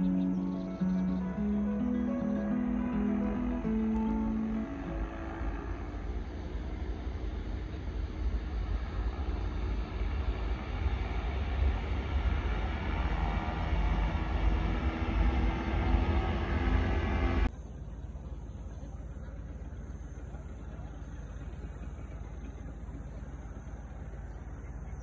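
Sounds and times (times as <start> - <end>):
paramotor engine running: 0.0 - 25.0.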